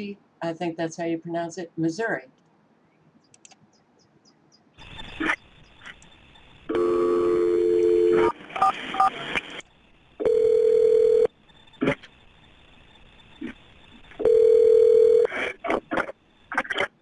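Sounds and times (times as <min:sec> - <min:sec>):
telephone dial tone: 0:06.7 - 0:08.3, 0:10.2 - 0:11.3, 0:14.2 - 0:15.3.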